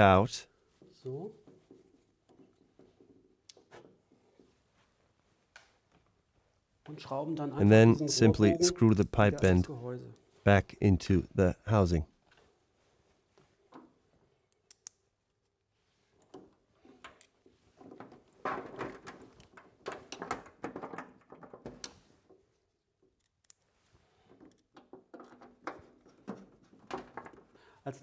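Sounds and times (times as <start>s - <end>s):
parts scraping and clicking: 16.1s - 20.6s, 21.2s - 27.6s.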